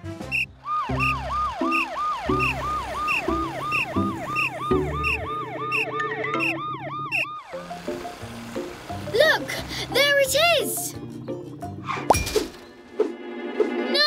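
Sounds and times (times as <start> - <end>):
cartoon siren sweeping: 0.3 - 7.7
higher cartoon siren: 0.4 - 7.7.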